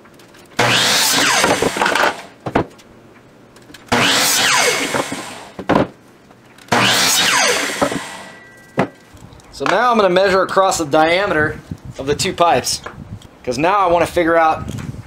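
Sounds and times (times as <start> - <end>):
miter saw cutting wood: 0.6 - 2.4, 3.9 - 5.6, 6.7 - 8.4.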